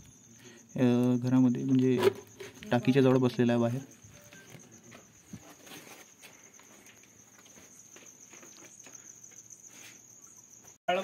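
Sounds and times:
crickets chirping: 0.0s - 11.0s
faint footsteps and scuffs: 4.1s - 10.8s.

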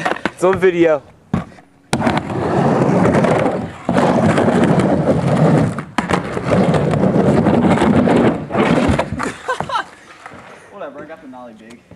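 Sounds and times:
skateboard wheels rolling on wood: 0.0s - 11.2s
sharp skateboard clack: 1.4s - 9.3s.

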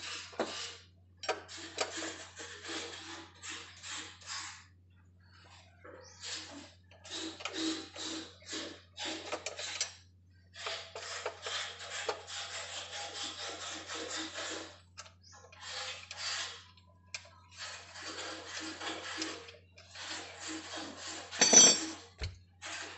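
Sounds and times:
rasping hand rubbing on metal: 1.5s - 4.7s, 10.6s - 14.8s, 15.4s - 16.8s, 17.5s - 21.8s, 22.6s - 22.9s.

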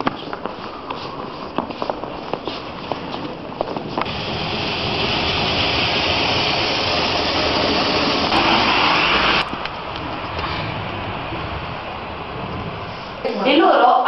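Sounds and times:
rushing hiss: 4.0s - 9.5s.

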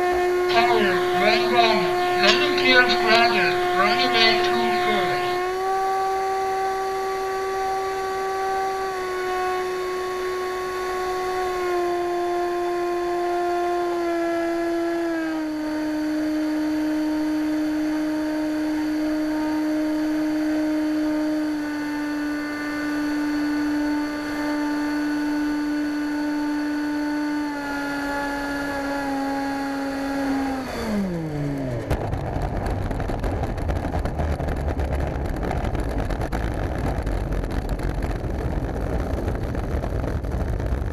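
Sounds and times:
electric ducted fan whining: 0.0s - 40.9s
rough rumbling of wheels rolling: 31.6s - 40.9s.

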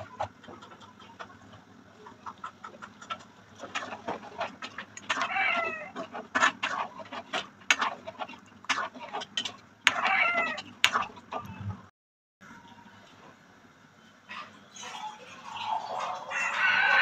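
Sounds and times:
chicken calling: 0.0s - 6.1s, 9.9s - 10.7s, 16.0s - 17.0s
metal utensils scraping a pot: 2.2s - 11.6s.

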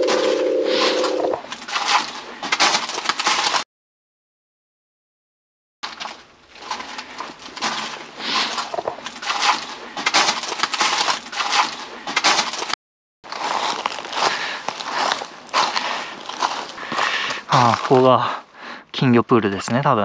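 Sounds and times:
footsteps crunching dry leaves: 6.4s - 18.2s.

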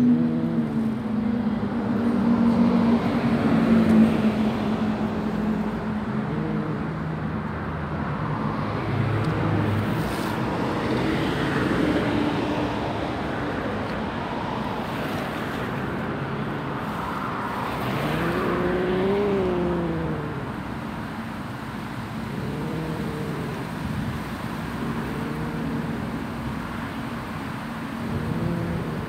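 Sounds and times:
steady background noise: 0.0s - 29.0s
cat growling: 5.3s - 7.2s, 17.8s - 20.7s, 21.9s - 26.9s, 27.8s - 29.0s.

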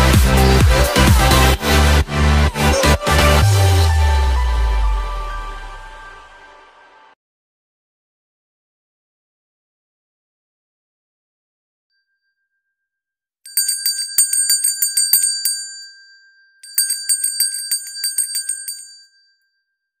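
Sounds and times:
handbell ringing: 13.5s - 19.7s.

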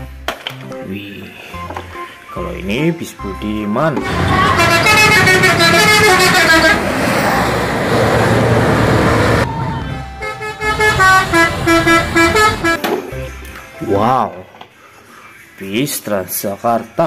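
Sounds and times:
musical bus horns: 4.0s - 13.3s
rushing noise: 4.1s - 12.8s.

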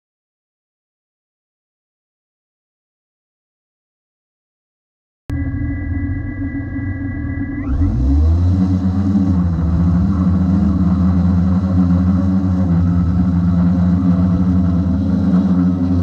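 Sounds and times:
drone motors humming: 5.3s - 16.0s.

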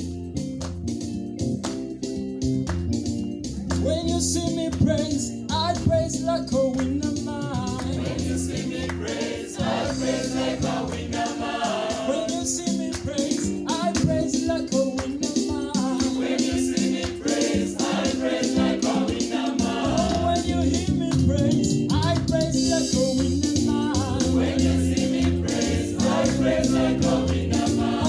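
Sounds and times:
instrumental backing: 0.0s - 28.0s
mixed choir singing: 8.0s - 12.4s, 15.8s - 20.5s, 23.9s - 28.0s.

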